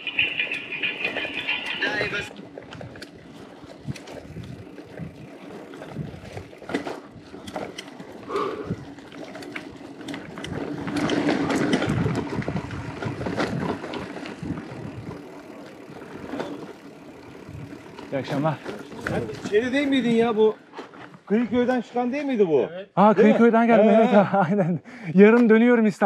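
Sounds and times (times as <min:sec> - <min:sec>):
scattered clicks: 0:00.0 - 0:02.3, 0:09.4 - 0:12.1
bike tyre noise: 0:00.0 - 0:22.0
wind on microphone: 0:03.8 - 0:06.5, 0:11.4 - 0:15.2.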